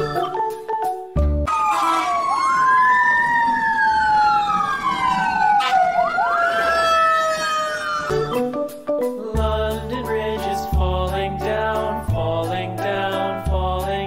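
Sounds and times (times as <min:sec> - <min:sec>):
fire truck siren wailing: 0:01.5 - 0:08.4
second siren tone sliding lower: 0:01.5 - 0:08.4.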